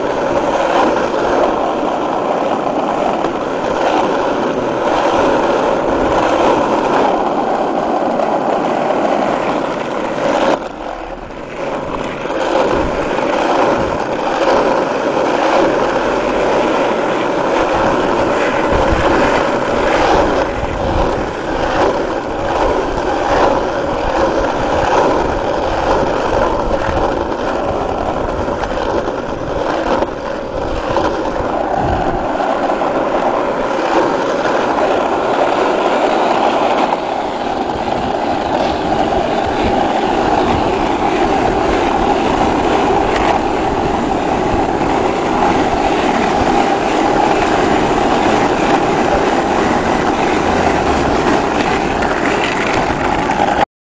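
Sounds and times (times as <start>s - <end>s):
skateboard wheels rolling on asphalt: 0.0s - 53.6s.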